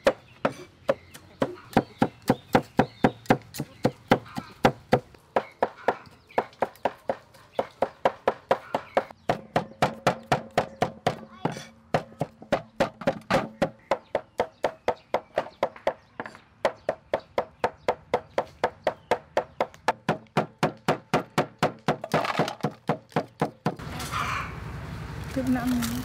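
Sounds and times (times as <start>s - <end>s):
cleaver chopping on wooden board: 0.0s - 23.8s.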